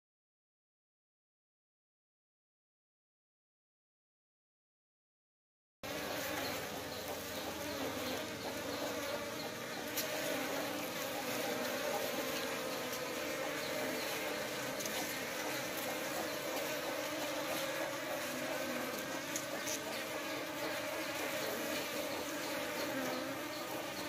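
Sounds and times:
honeybees buzzing: 5.8s - 24.0s.

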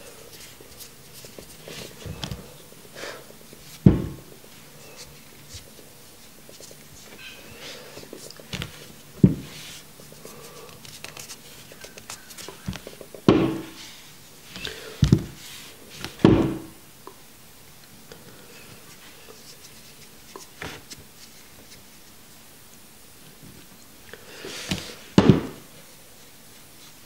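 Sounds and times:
rustling: 0.0s - 16.7s
knocks and thuds on tabletop: 3.8s - 4.3s, 9.2s - 9.5s, 12.7s - 13.7s, 16.2s - 16.7s, 25.2s - 25.6s.

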